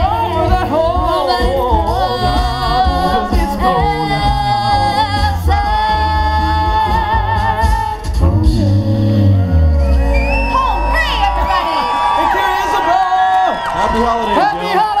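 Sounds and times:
a cappella group singing in harmony: 0:00.0 - 0:10.6
deep sung bass line: 0:00.0 - 0:11.6.

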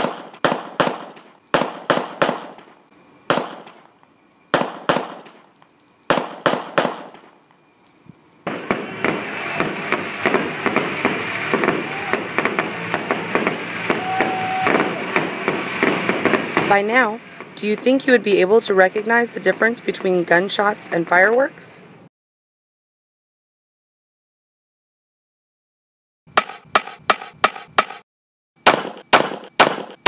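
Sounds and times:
distant sharp bangs with echoes: 0:00.0 - 0:02.7, 0:03.3 - 0:03.8, 0:04.5 - 0:05.4, 0:06.1 - 0:07.2, 0:08.5 - 0:17.6, 0:28.6 - 0:30.0
fireworks crackling: 0:08.5 - 0:18.4.

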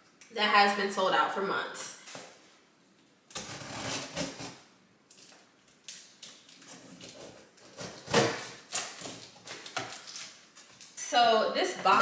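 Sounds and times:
scissors cutting packing tape: 0:03.3 - 0:04.6
cardboard rustling and scraping: 0:03.4 - 0:04.6.

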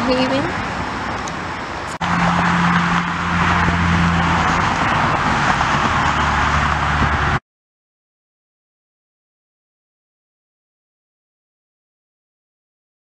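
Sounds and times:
low engine hum: 0:00.0 - 0:07.4
vehicle noise rush: 0:00.0 - 0:07.4.

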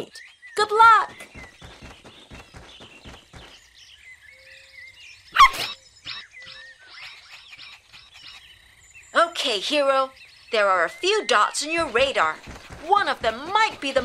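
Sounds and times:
quick regular taps: 0:01.1 - 0:03.7, 0:11.6 - 0:14.0
cartoon puppy bark: 0:05.4 - 0:05.7.

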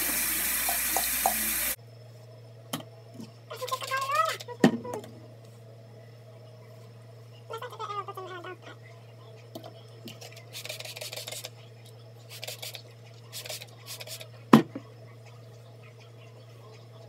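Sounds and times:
spray bottle hissing sprays: 0:00.0 - 0:01.8, 0:10.5 - 0:11.5, 0:12.3 - 0:14.3
steady low hum: 0:00.0 - 0:17.0.

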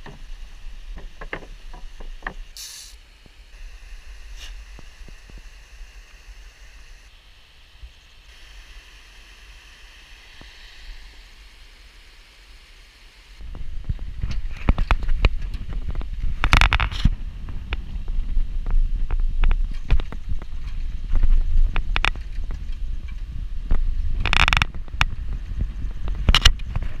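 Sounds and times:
road rumble: 0:00.0 - 0:27.0
rushes of wind hiss: 0:00.2 - 0:22.1
wind buffeting microphone: 0:13.4 - 0:27.0.

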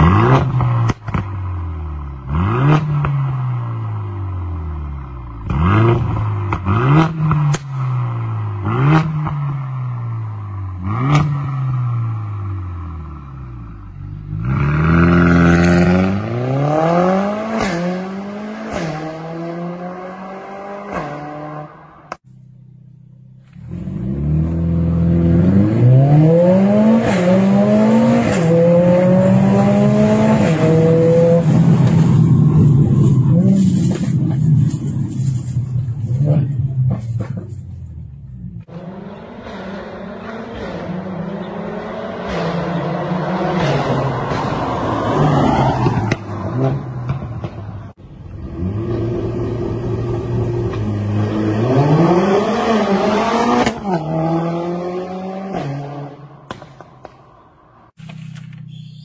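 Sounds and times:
car engine revving: 0:00.0 - 0:22.2, 0:23.1 - 0:58.0
exhaust pops and crackles: 0:00.3 - 0:01.4, 0:31.4 - 0:38.0, 0:56.4 - 0:58.7
car accelerating through gears: 0:23.6 - 0:34.4, 0:48.5 - 0:56.6.

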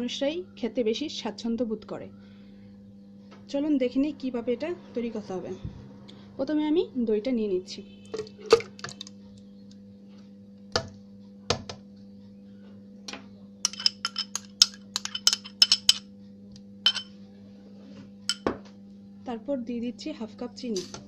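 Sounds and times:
low electrical hum: 0:00.0 - 0:21.0
spoon clinking on ceramic bowl: 0:13.7 - 0:16.1, 0:16.9 - 0:17.1, 0:18.3 - 0:18.5.

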